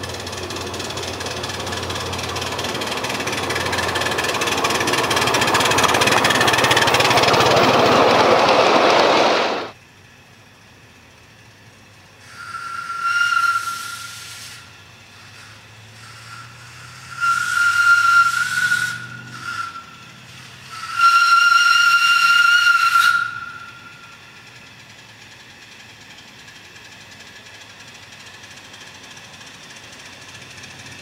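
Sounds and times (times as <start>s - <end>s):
faint low engine rumble: 0.0s - 21.0s, 21.9s - 31.0s
steam whistle blowing: 12.2s - 24.3s.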